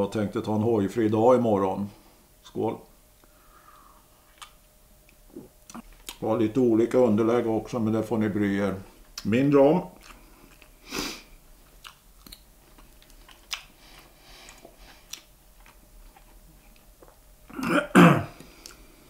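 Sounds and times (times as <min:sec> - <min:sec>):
man chewing food: 0:04.2 - 0:06.2, 0:09.9 - 0:17.7, 0:18.3 - 0:19.0.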